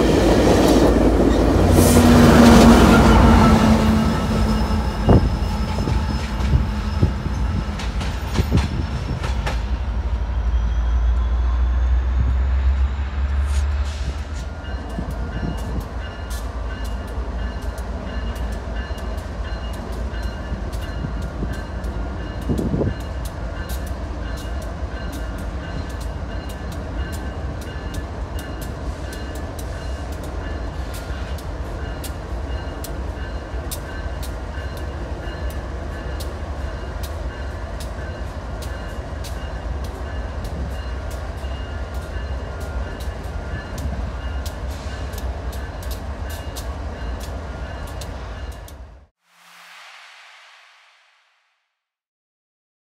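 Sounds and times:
locomotive engine rumbling: 0:00.0 - 0:19.6
train wheel noise: 0:00.0 - 0:49.1.

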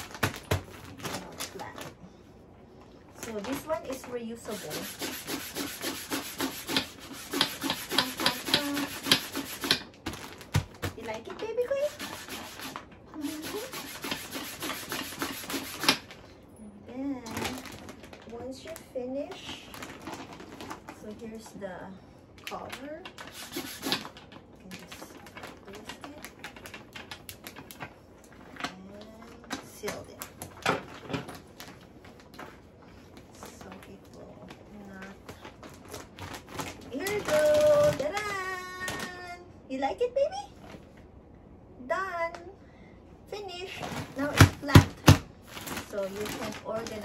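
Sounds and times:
plastic bag crinkling: 0:00.0 - 0:02.1, 0:09.8 - 0:13.7, 0:17.1 - 0:21.5, 0:22.3 - 0:39.3, 0:43.7 - 0:47.0.

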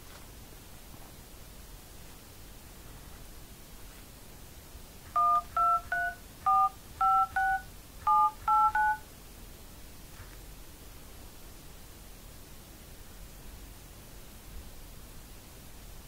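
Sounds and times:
phone keypad two-tone beeps: 0:05.2 - 0:09.0.

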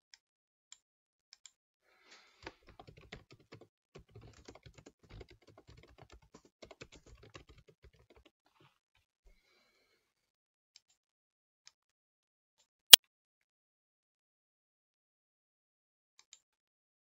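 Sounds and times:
keyboard typing: 0:02.4 - 0:08.2.

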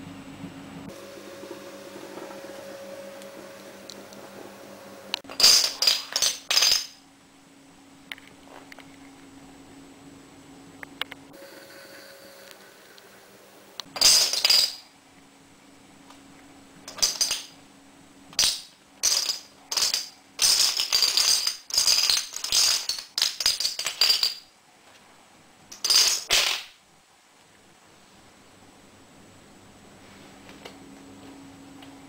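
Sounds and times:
dominoes clattering on wooden floor: 0:05.3 - 0:07.0, 0:14.0 - 0:14.8, 0:16.9 - 0:17.5, 0:18.4 - 0:24.5, 0:25.7 - 0:26.7.

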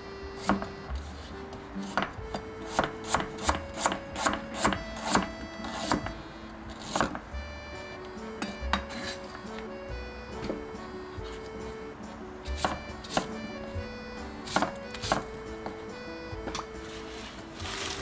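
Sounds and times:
background music: 0:00.0 - 0:18.0
knife chopping on cutting board: 0:00.4 - 0:07.2, 0:08.4 - 0:09.4, 0:12.4 - 0:13.4, 0:14.4 - 0:15.8.

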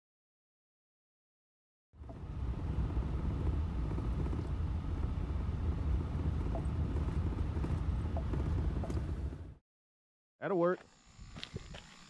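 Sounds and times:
engine hum: 0:02.0 - 0:09.6
tyre noise on gravel road: 0:05.8 - 0:09.5.

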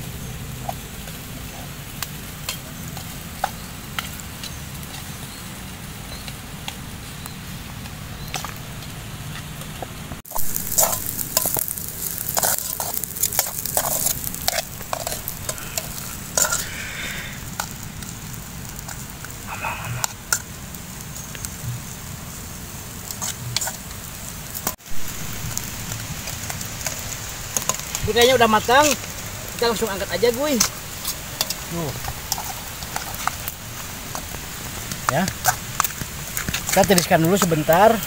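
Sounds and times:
rice sizzling in a pot: 0:00.0 - 0:38.0
metal utensil scraping a pot: 0:10.7 - 0:16.8.

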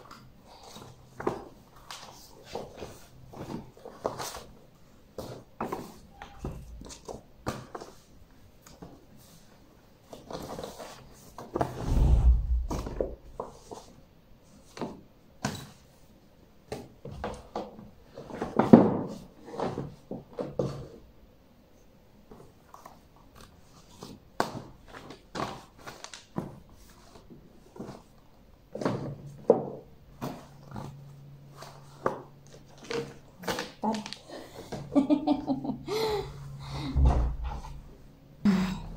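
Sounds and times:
heavy thump: 0:11.8 - 0:13.4, 0:36.9 - 0:37.7.

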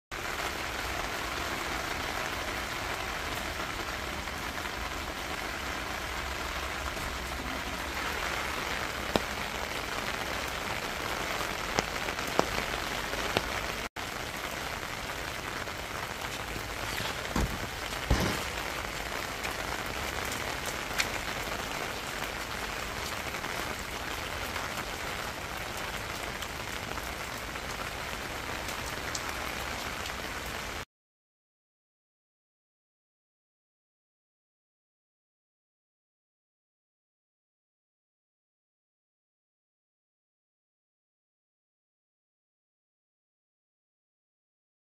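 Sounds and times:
rain on hard surfaces: 0:00.1 - 0:30.9.

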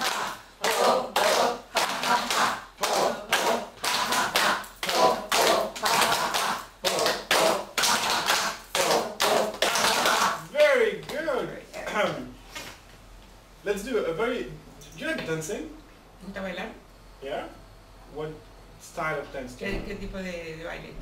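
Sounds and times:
hands clapping: 0:00.0 - 0:11.3.

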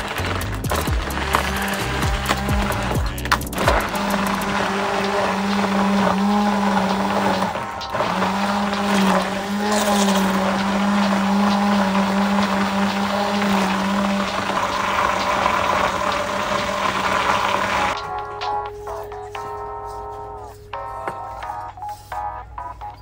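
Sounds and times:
immersion blender running: 0:00.0 - 0:18.0
background music: 0:00.0 - 0:23.0.

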